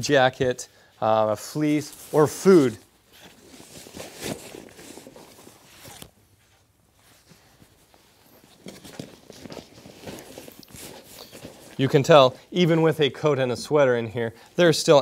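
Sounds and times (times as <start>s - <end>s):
fabric rustling in backpack: 1.4s - 13.0s.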